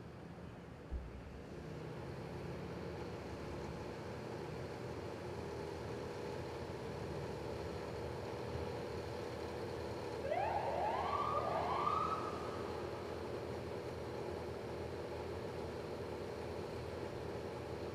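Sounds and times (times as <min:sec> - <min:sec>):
idling vehicle engines and traffic: 0:00.0 - 0:17.9
emergency siren whoops: 0:10.2 - 0:13.5.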